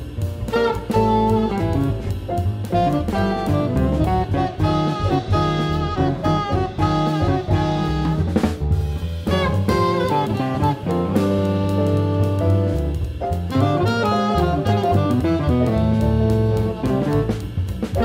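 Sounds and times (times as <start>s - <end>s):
jazz band playing: 0.0s - 18.0s
saxophone run: 0.5s - 8.6s, 9.2s - 17.6s.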